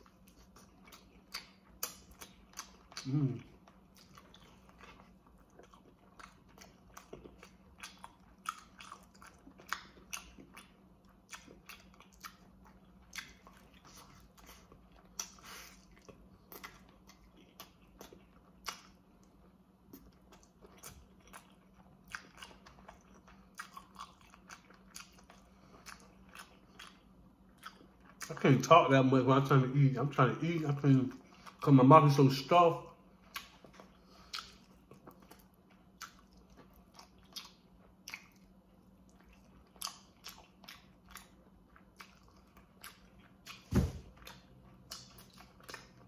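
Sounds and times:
person chewing food: 0.0s - 29.0s, 30.1s - 46.0s
faint steady hum: 0.0s - 46.0s.

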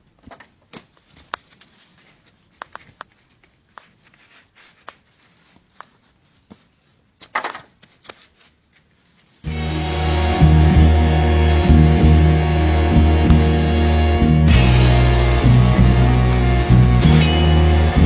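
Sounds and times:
rustling scuffle: 0.2s - 9.5s
hooves on leaves and stones: 0.5s - 9.5s.

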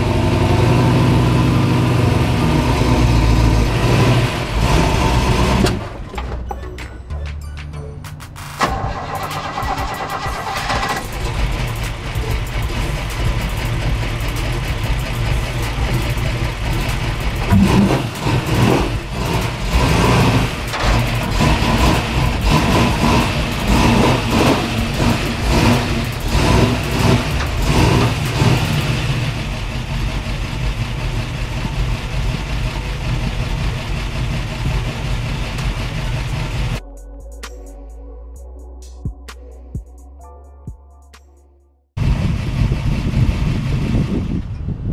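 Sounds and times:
vehicle engine revving: 0.0s - 6.0s, 8.6s - 36.8s.

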